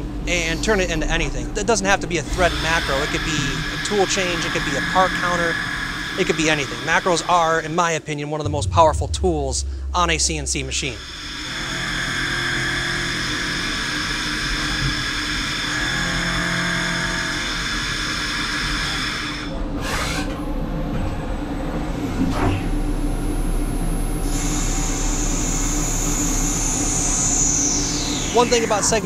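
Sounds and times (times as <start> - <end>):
lathe spindle whine: 2.3 - 7.4.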